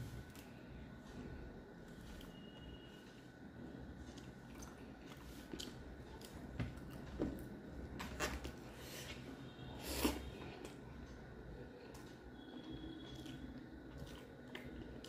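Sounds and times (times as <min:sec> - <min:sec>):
chewing: 0:04.0 - 0:07.1, 0:13.0 - 0:15.0.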